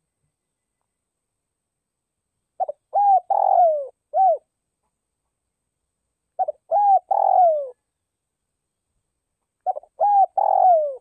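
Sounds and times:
dove cooing: 0:02.6 - 0:04.5, 0:06.4 - 0:07.8, 0:09.6 - 0:11.0.

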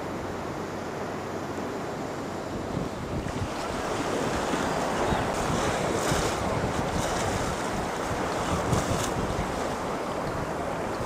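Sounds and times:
sea surf: 0:00.0 - 0:11.0
wind on microphone: 0:02.6 - 0:11.0.

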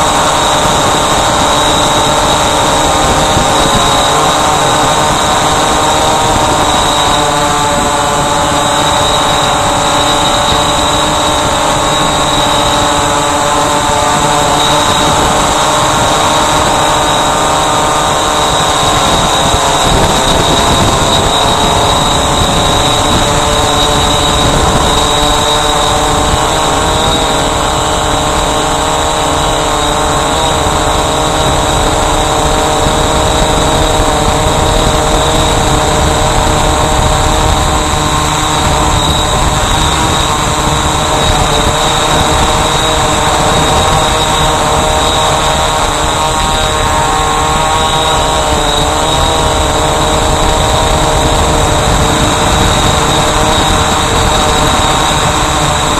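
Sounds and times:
quadcopter propellers whining: 0:00.0 - 0:55.9.

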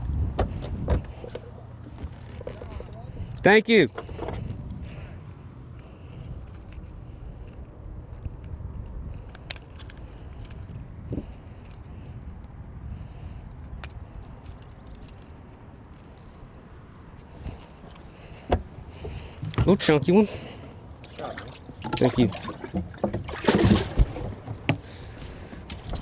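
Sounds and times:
low steady rumble: 0:00.0 - 0:26.0.

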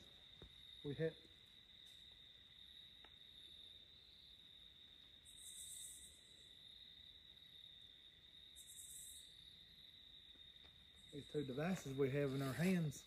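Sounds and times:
high-pitched cricket trill: 0:00.0 - 0:13.0.

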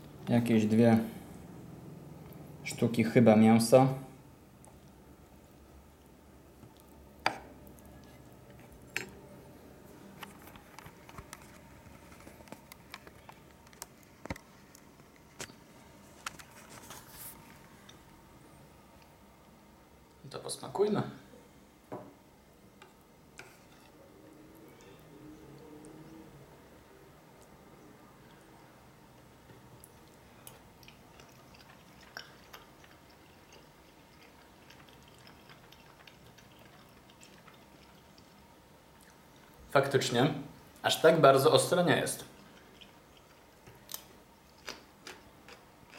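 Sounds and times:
chewing food: 0:29.5 - 0:39.6, 0:42.2 - 0:45.9.

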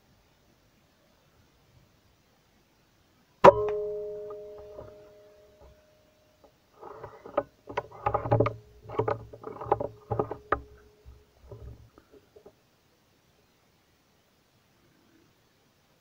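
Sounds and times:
rifle handling rustling and knocking: 0:06.8 - 0:12.5.

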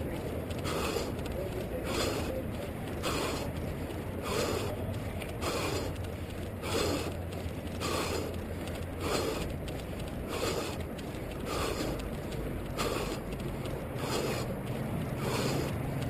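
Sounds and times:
runner breathing: 0:00.0 - 0:16.0
running footfalls: 0:00.0 - 0:16.0.

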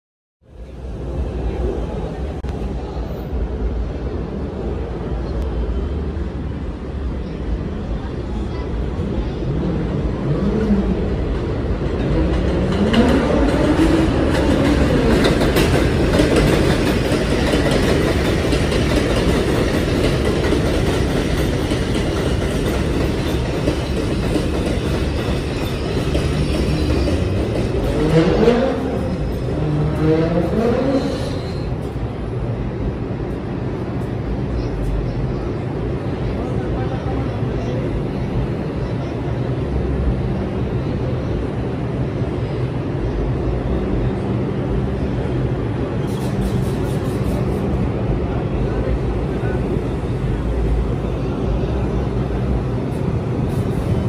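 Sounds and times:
continuous rumble: 0:27.1 - 0:54.0.

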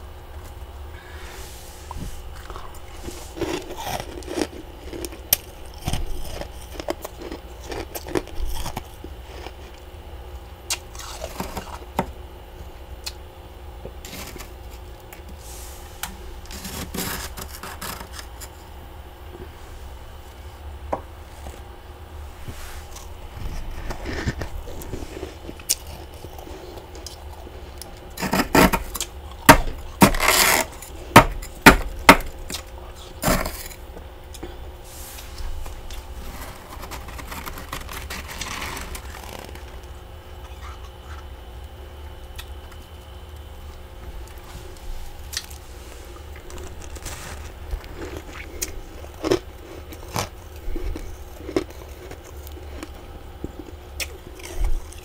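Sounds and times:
spoon scraping frost: 0:01.0 - 0:08.8, 0:28.1 - 0:31.6, 0:32.5 - 0:33.8, 0:34.8 - 0:39.8.

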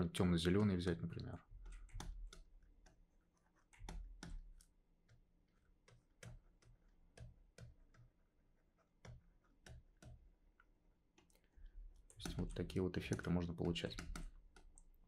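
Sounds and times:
mouse and keyboard clicks: 0:01.6 - 0:03.0, 0:03.6 - 0:05.2, 0:05.8 - 0:08.1, 0:11.2 - 0:15.0.

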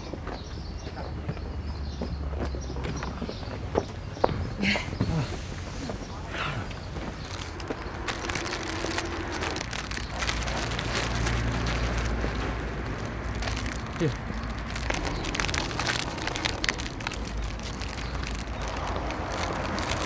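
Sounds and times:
crackling and rustling: 0:05.0 - 0:20.0
low rumble: 0:06.6 - 0:20.0.

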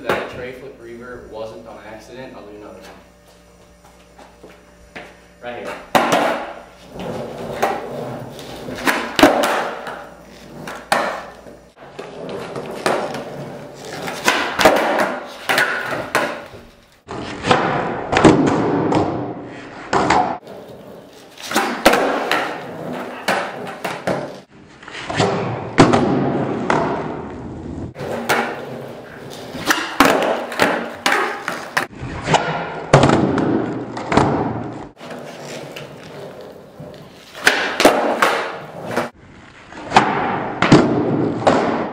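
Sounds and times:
skateboard wheels rolling on concrete: 0:01.4 - 0:41.9
skateboard clacking landings: 0:05.8 - 0:06.6, 0:07.4 - 0:20.5, 0:21.4 - 0:24.4, 0:28.0 - 0:39.1, 0:39.8 - 0:41.9
skateboard tail pops: 0:05.9 - 0:20.4, 0:21.4 - 0:24.4, 0:25.0 - 0:27.3, 0:28.0 - 0:36.1, 0:36.9 - 0:39.1, 0:39.8 - 0:41.9.

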